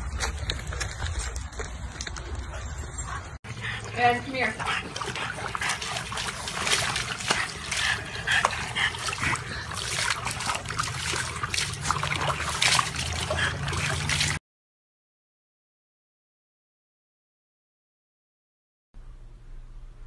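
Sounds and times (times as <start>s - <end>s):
water splashing in a tub: 3.8s - 14.4s.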